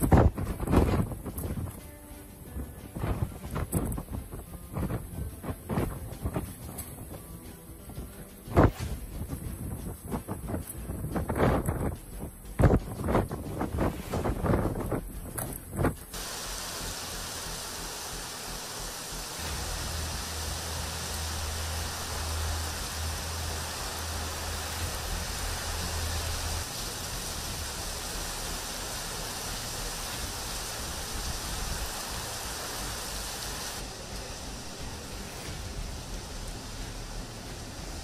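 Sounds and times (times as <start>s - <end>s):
wind buffeting microphone: 0.0s - 1.8s, 2.5s - 7.2s, 7.9s - 16.2s
heavy rain falling: 0.0s - 38.0s
low hum: 0.0s - 38.0s.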